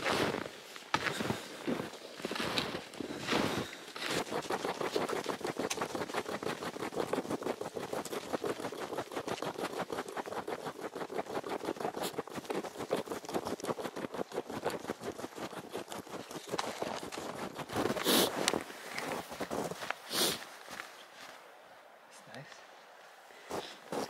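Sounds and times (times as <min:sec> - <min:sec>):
footsteps crunching through snow: 0:00.0 - 0:09.0, 0:14.1 - 0:21.5, 0:23.0 - 0:24.0.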